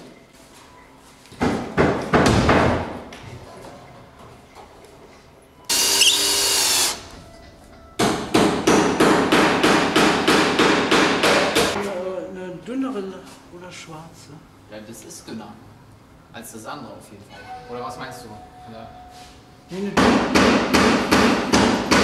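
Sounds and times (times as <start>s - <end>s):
drill whirring: 5.7s - 7.1s.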